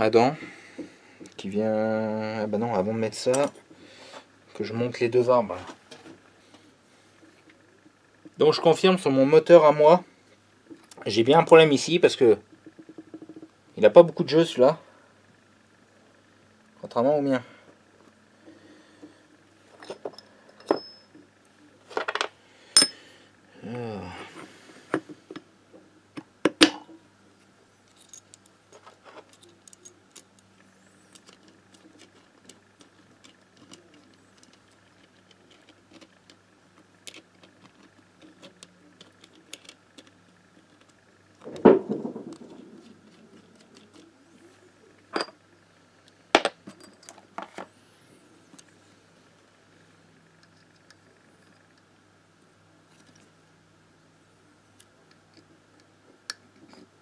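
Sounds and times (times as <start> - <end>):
metal parts and tools clinking: 19.7 - 21.2, 21.9 - 23.0.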